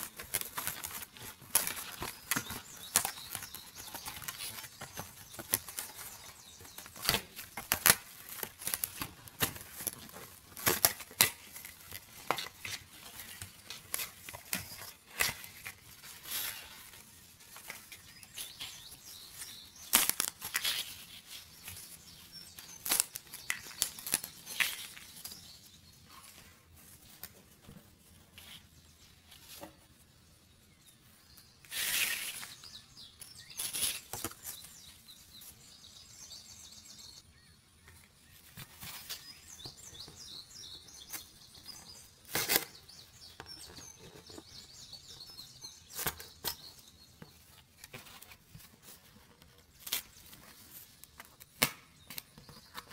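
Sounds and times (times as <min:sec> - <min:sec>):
cardboard tearing: 0:00.0 - 0:16.9, 0:17.5 - 0:21.9, 0:22.6 - 0:25.2, 0:42.2 - 0:42.9
cardboard pieces snapping out: 0:06.8 - 0:16.6, 0:19.9 - 0:21.0, 0:22.8 - 0:25.1, 0:42.3 - 0:42.8.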